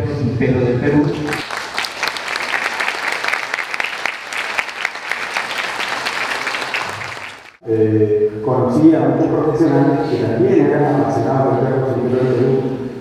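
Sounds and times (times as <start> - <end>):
audience clapping: 1.1 - 7.6.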